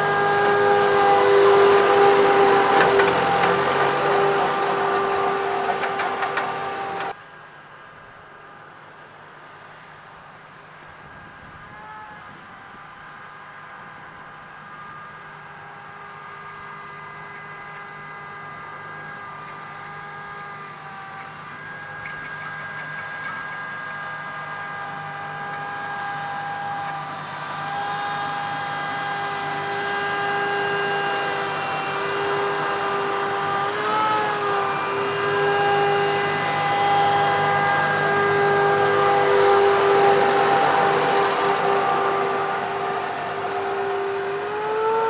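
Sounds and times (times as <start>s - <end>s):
fertilizer spreader whine: 0.0s - 7.2s, 12.9s - 45.0s
tractor diesel engine running: 0.0s - 7.2s, 21.2s - 45.0s.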